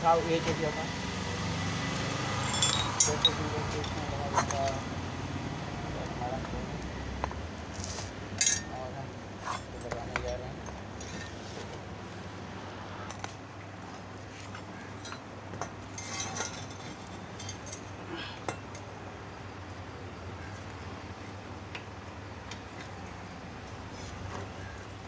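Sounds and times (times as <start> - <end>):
metallic clinks and knocks: 2.4 - 4.8.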